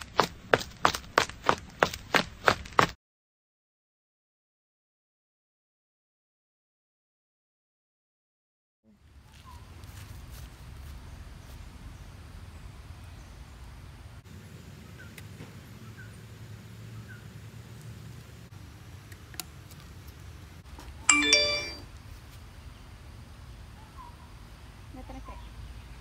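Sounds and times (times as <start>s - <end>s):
bicycle bell ding: 21.1s - 21.8s.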